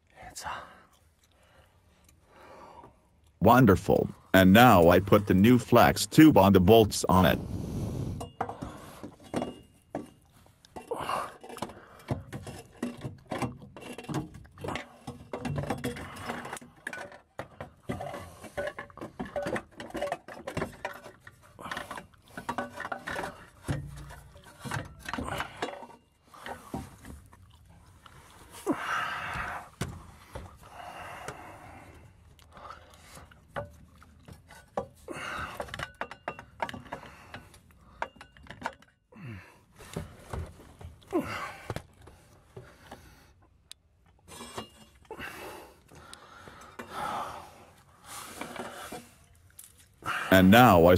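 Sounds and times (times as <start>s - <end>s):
metal clinks knocks and scrapes: 8.2s - 10.9s, 11.5s - 26.9s, 35.6s - 39.0s, 44.3s - 45.1s.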